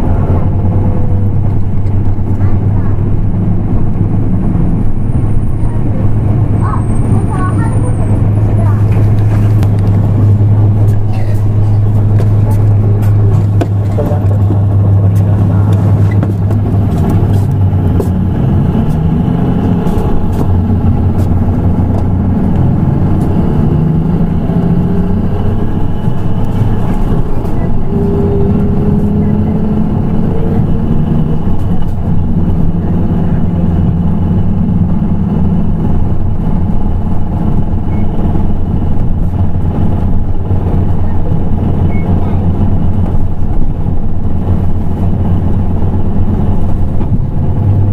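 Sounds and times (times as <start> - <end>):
diesel bus engine idling: 0.0 - 47.9.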